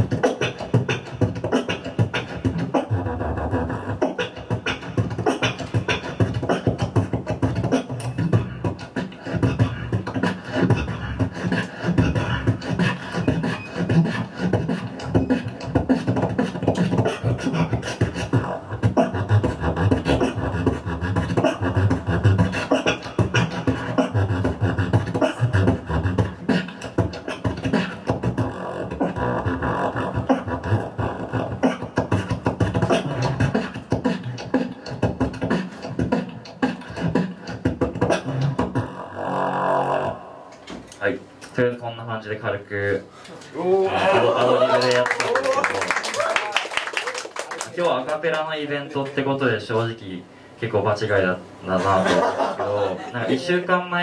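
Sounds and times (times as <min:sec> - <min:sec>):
person beatboxing into a microphone: 0:00.0 - 0:42.3.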